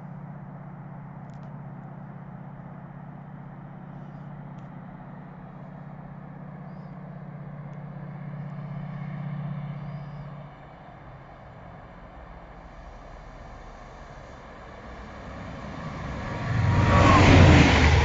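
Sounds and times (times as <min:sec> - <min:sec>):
diesel train engine drone: 0:00.0 - 0:18.0.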